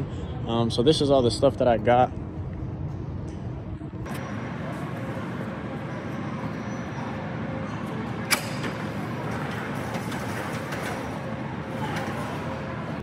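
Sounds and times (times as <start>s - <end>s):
warehouse background noise: 0.0s - 13.0s.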